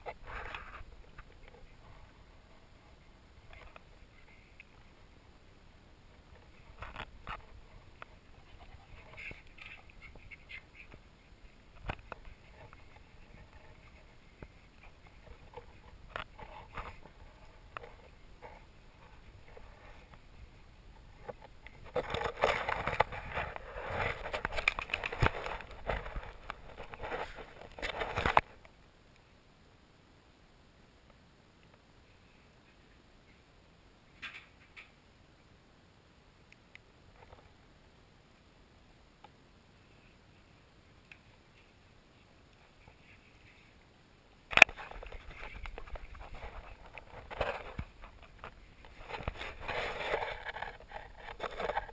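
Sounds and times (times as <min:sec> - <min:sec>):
faint clicks and soft bumps: 0:06.0 - 0:29.3.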